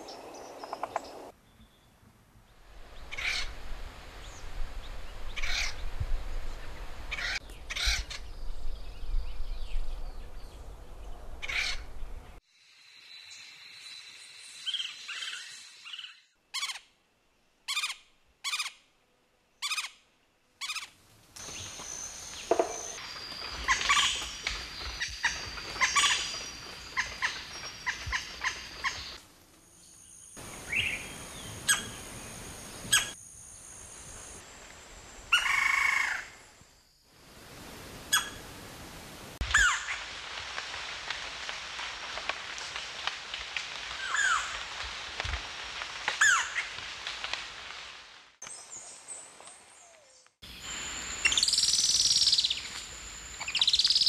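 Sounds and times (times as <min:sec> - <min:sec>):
woodpecker calls: 0:00.0 - 0:01.3, 0:22.4 - 0:29.2.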